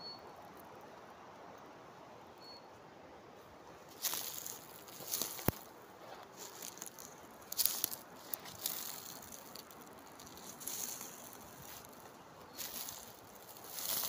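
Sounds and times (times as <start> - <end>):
dry leaves and twigs crunching: 3.8 - 14.0.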